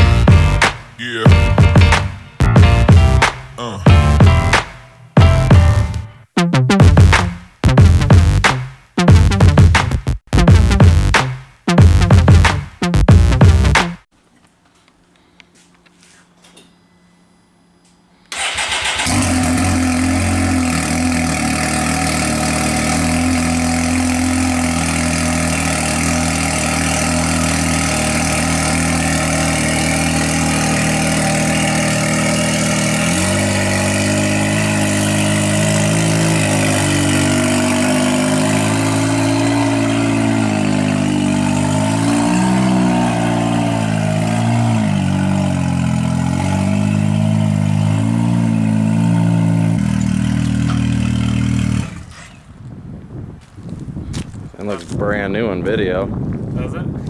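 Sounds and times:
engine starting and idling: 18.3s - 29.2s, 50.0s - 52.6s.

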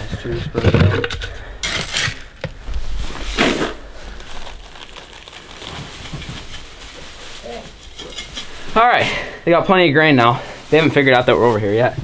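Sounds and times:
grain pouring into pan: 4.2s - 6.6s.

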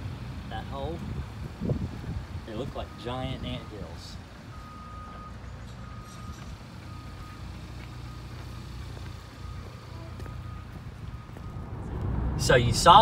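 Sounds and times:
low engine rumble: 0.0s - 13.0s
reversing alarm beeps: 2.8s - 11.7s.

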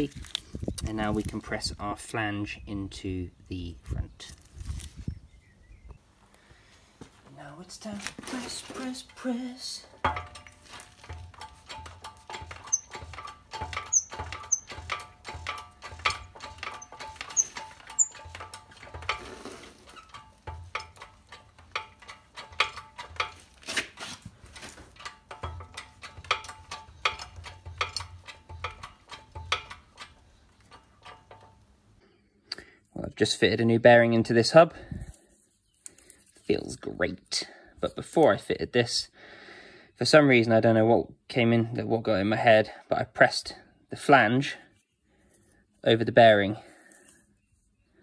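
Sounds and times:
hydraulic pump clicking: 9.9s - 24.0s, 24.9s - 31.6s.

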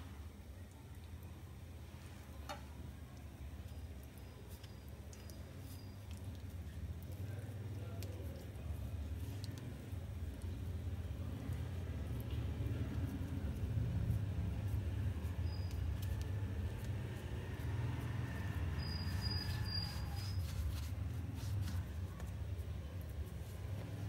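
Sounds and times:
hands pressing dough: 3.6s - 24.0s.

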